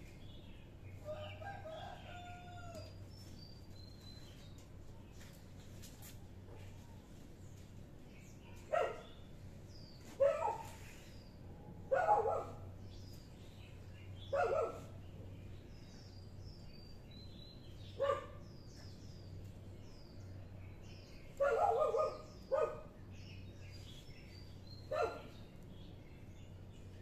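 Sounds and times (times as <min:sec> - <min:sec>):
small birds chirping faintly: 0:00.0 - 0:27.0
dog barking: 0:08.5 - 0:09.1, 0:10.2 - 0:10.8, 0:11.9 - 0:12.6, 0:14.3 - 0:15.0, 0:18.0 - 0:18.4, 0:21.4 - 0:22.9, 0:24.9 - 0:25.4.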